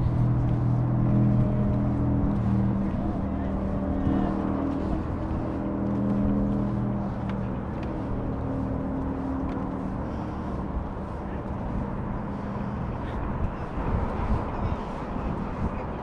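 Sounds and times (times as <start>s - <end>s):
motor engine droning: 0.0s - 16.0s.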